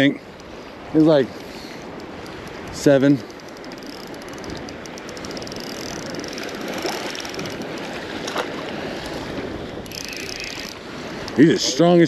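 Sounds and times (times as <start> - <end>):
lake water washing: 0.0 - 12.0.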